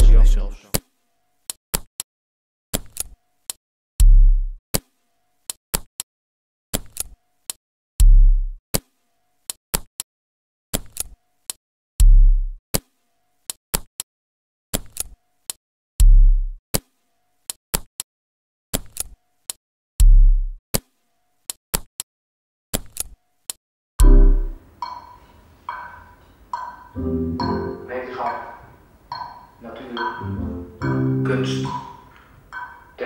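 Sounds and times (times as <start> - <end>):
booming kick drum: 4.0 - 4.6, 8.0 - 8.6, 12.0 - 12.6, 16.0 - 16.6, 20.0 - 20.6.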